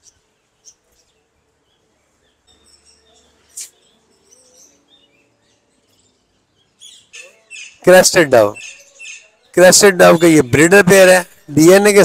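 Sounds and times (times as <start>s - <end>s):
budgerigars chirping: 6.5s - 12.0s.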